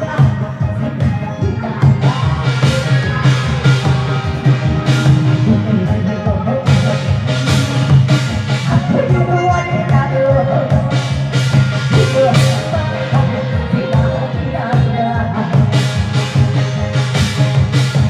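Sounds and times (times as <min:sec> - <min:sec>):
steady beat: 0:00.0 - 0:18.0
barrel drum: 0:01.8 - 0:10.0.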